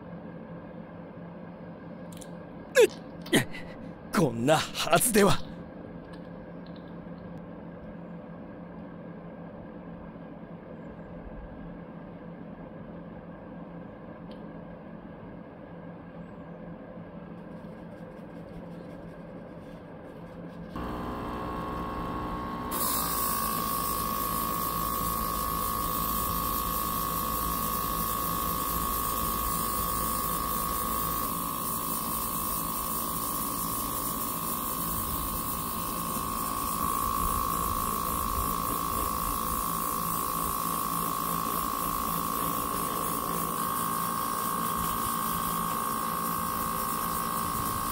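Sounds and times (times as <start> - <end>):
air compressor whine: 19.6 - 47.9
airbrush spraying hiss: 22.7 - 35.6.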